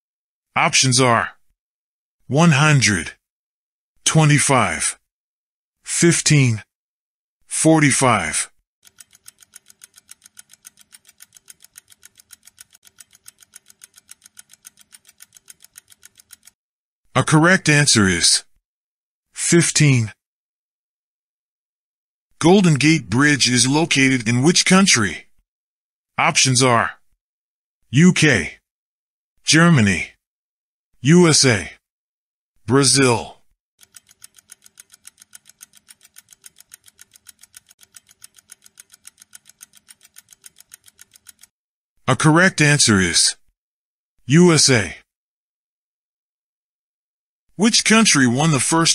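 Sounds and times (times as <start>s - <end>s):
rapid clock ticking: 8.8s - 16.6s, 33.8s - 41.5s.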